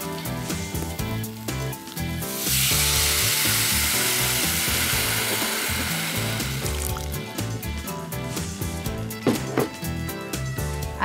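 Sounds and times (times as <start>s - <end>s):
water sizzling in a hot pan: 0.0s - 7.7s
background music: 0.0s - 11.0s.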